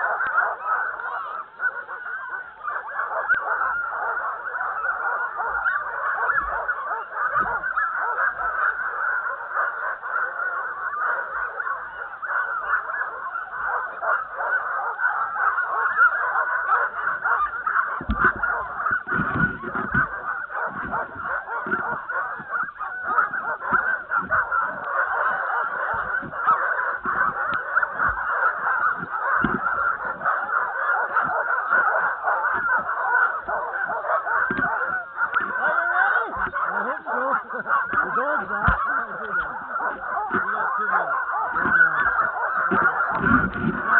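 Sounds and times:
sled dogs barking and yelping: 0.0s - 43.9s
low thumps: 18.0s - 24.9s, 25.9s - 30.3s.

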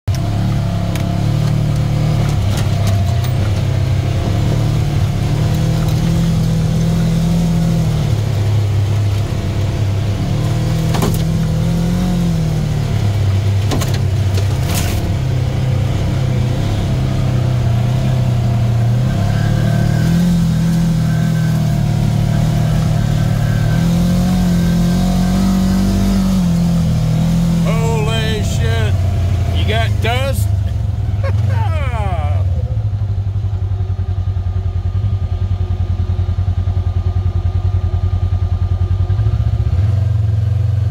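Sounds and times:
vehicle engine running: 0.0s - 40.9s.

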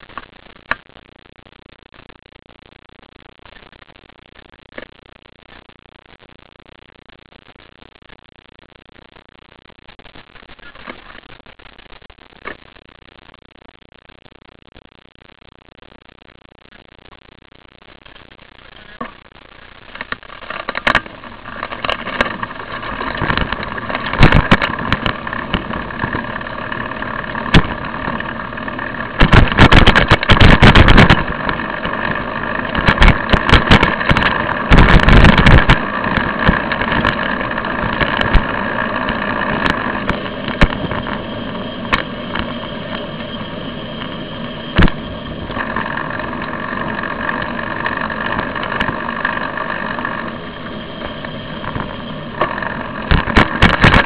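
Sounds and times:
bicycle road rumble: 0.0s - 54.0s
wind: 15.8s - 54.0s
bicycle knocks and rattles: 19.9s - 41.2s.

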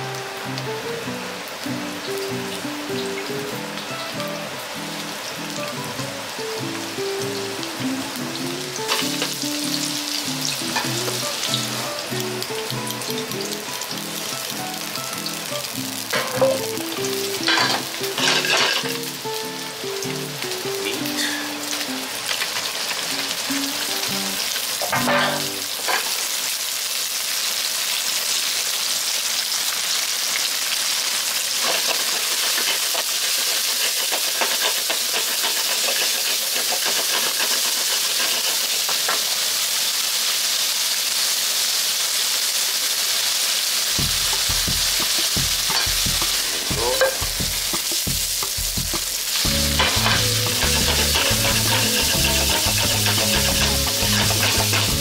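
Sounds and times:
background music: 0.0s - 22.2s, 44.0s - 55.0s
pork sizzling in hot oil: 0.0s - 55.0s.

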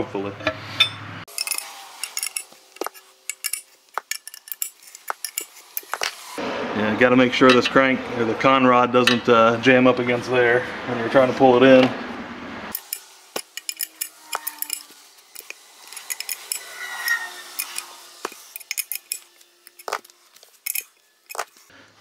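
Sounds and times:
wrench clicking on metal: 1.3s - 6.2s, 12.7s - 21.6s.

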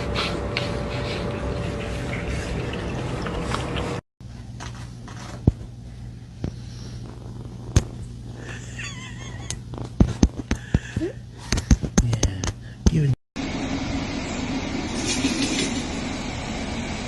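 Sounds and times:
cat lapping water: 1.2s - 4.0s.

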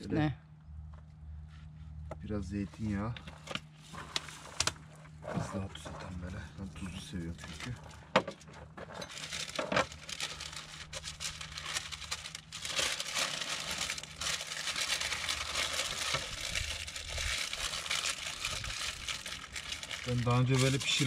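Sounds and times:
paper and foil crinkling: 3.3s - 5.2s, 6.0s - 8.1s, 8.8s - 21.0s.

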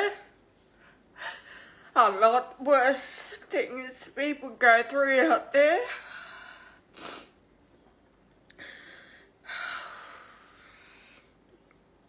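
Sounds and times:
sniff: 6.9s - 7.4s.

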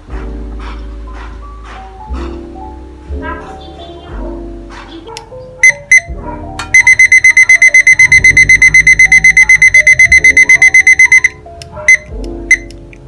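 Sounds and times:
kitchen timer beeping: 5.6s - 6.1s, 6.7s - 12.7s.

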